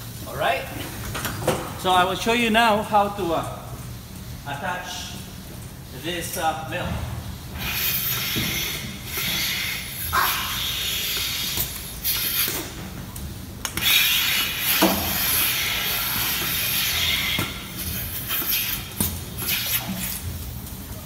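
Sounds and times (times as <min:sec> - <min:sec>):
milking machine hissing and sucking: 0:07.5 - 0:12.9, 0:13.7 - 0:20.6.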